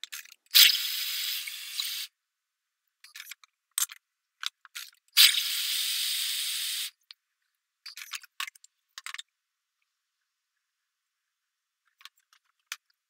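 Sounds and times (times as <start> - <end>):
clicks and rattles: 0.0 - 0.5, 7.1 - 9.3, 11.8 - 13.0.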